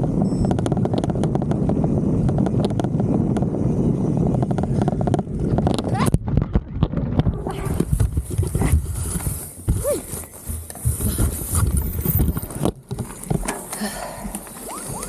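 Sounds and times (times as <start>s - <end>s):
bike knocking and rattling: 0.0s - 15.0s
rustling in dry grass: 7.4s - 13.8s.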